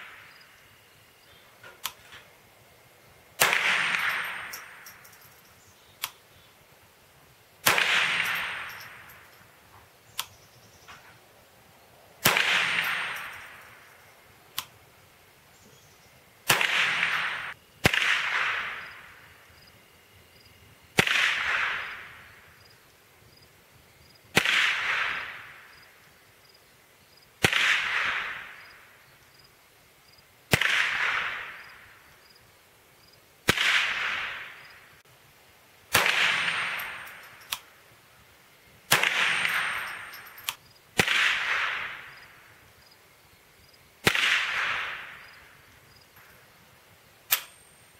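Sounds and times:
rifle shots echoing: 3.4 - 4.9, 7.6 - 9.2, 12.2 - 13.9, 16.4 - 19.4, 21.0 - 22.4, 24.3 - 25.8, 27.4 - 28.8, 30.5 - 32.0, 33.4 - 34.7, 35.9 - 37.7, 38.9 - 42.5, 44.0 - 45.7.

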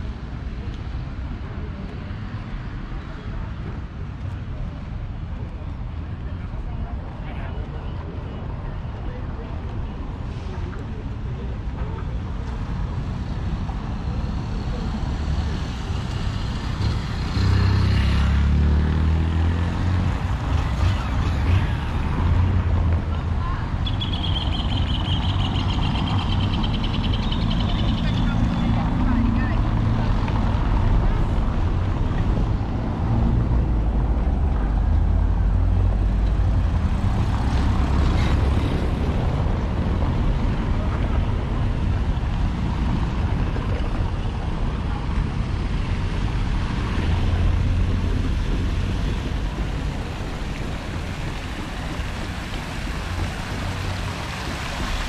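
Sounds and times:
traffic rumble: 0.0 - 55.0.

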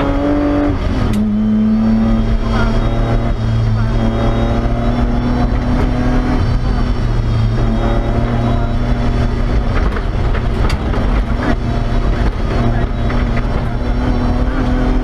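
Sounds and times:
car engine running under load: 0.0 - 15.0
road and drivetrain noise: 0.0 - 15.0.

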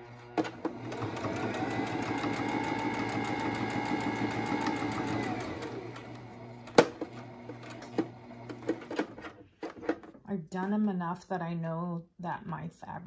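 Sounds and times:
sewing machine stitching: 0.0 - 9.9.

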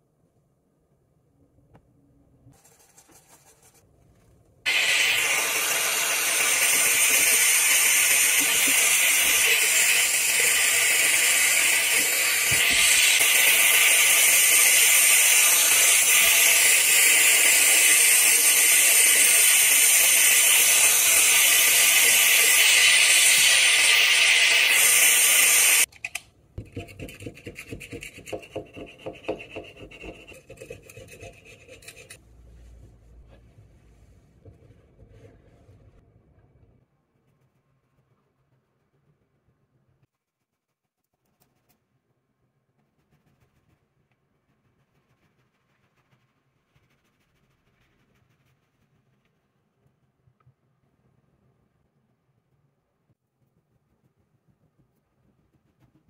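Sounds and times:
faint scratching: 2.5 - 4.5, 42.8 - 49.9
steam cleaner nozzle hissing: 4.7 - 25.9
scrubbing strokes on steel: 26.7 - 36.0.

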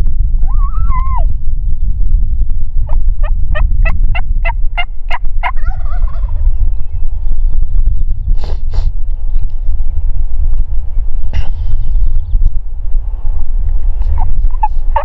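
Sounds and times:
wind rumble on microphone: 0.0 - 15.0
turkey yelps: 0.5 - 1.3, 3.8 - 6.4, 14.2 - 15.0
turkey gobbling: 3.2 - 6.4, 14.2 - 15.0.

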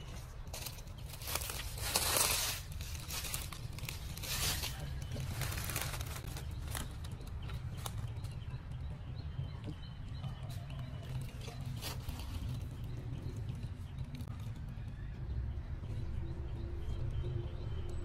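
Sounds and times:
dry leaves rustling and crunching: 0.0 - 8.3, 11.0 - 13.1.

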